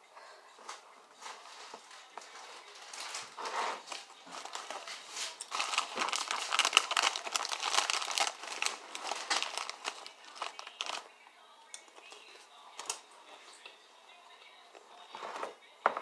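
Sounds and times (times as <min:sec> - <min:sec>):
foil chip bag crackling: 0:02.7 - 0:11.1.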